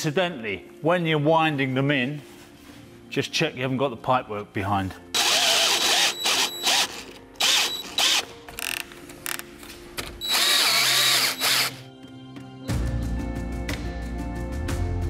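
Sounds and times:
cordless drill motor: 5.2s - 8.8s, 10.2s - 11.8s.

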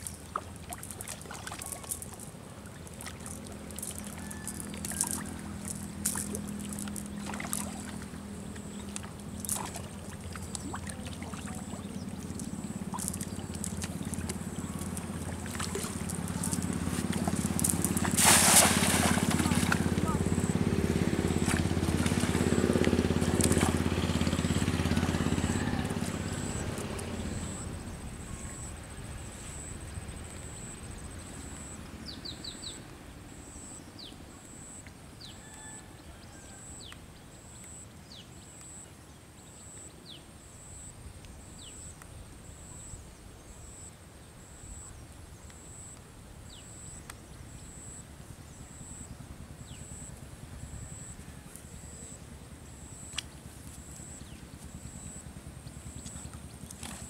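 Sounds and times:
vehicle engine: 3.1s - 28.8s.

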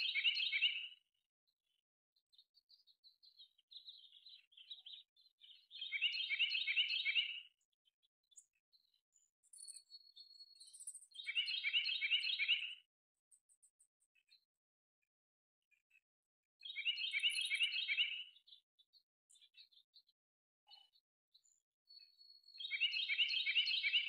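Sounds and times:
songbird chattering song: 0.0s - 1.0s, 2.2s - 14.4s, 16.6s - 24.0s.

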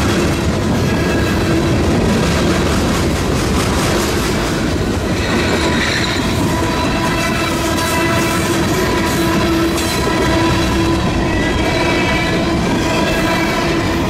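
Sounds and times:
train wheels clattering on rails: 0.0s - 14.0s.

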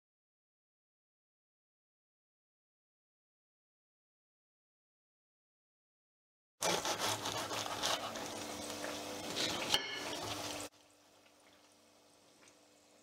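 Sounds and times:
hot oil sizzling in a frying pan: 7.5s - 13.0s.

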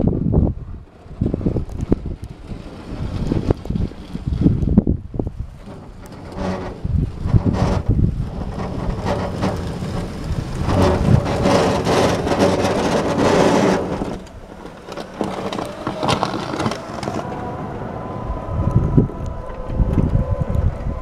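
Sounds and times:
snow scraping and crunching: 5.3s - 17.7s.

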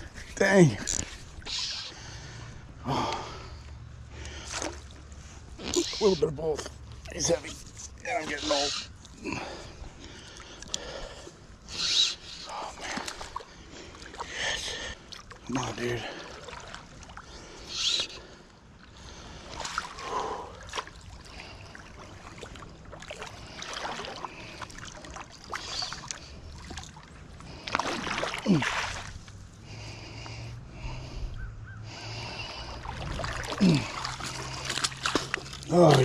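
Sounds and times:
water splashing and sloshing: 0.0s - 36.0s
fish thrashing at surface: 32.8s - 36.0s.

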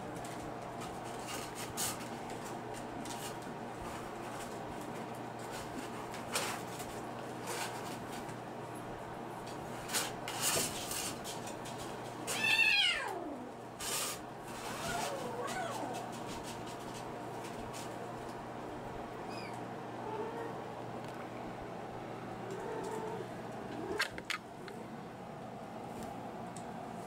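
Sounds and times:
rustles and light knocks: 0.1s - 8.4s, 9.4s - 12.5s, 13.8s - 18.4s
kitten meowing: 12.3s - 13.3s.

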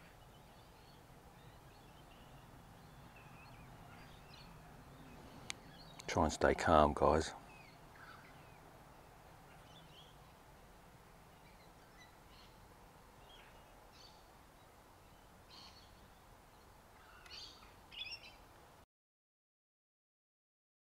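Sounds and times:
bird chirps: 0.0s - 6.2s, 7.4s - 10.4s, 13.2s - 18.4s.

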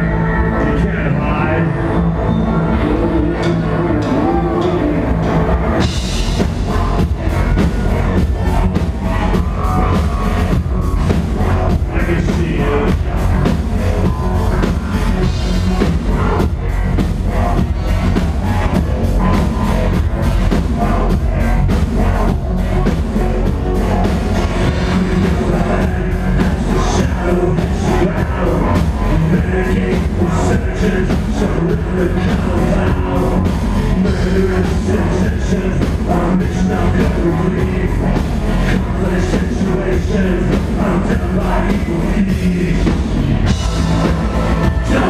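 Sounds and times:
live industrial band playing: 0.0s - 45.0s.

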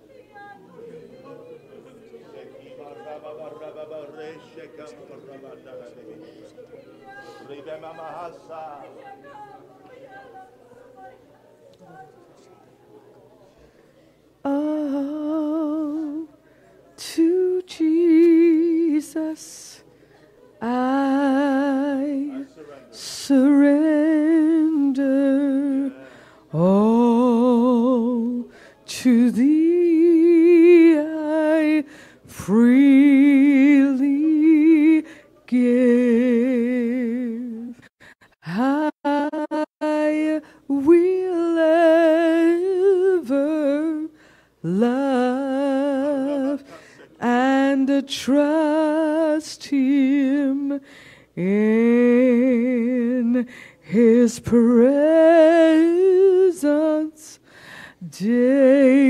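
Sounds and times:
woman singing unaccompanied: 14.4s - 16.4s, 17.0s - 19.9s, 20.6s - 57.4s, 58.0s - 59.0s.

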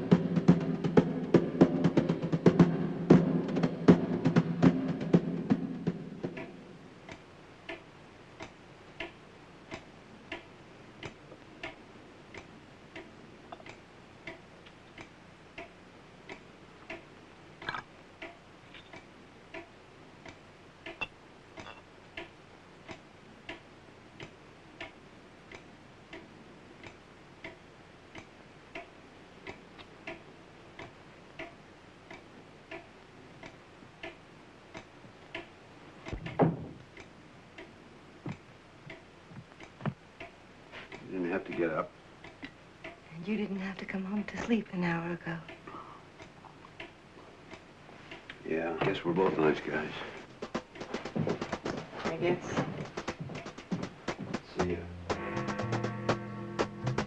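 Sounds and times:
clock ticking: 0.0s - 57.0s
loud thump: 36.2s - 36.8s.

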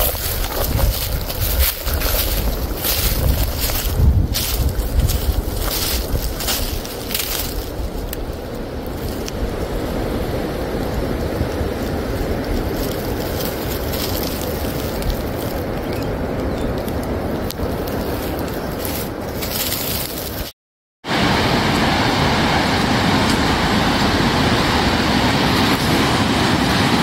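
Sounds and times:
vehicle rumbling on dirt trail: 0.0s - 20.5s
wind buffeting microphone: 0.0s - 20.5s.

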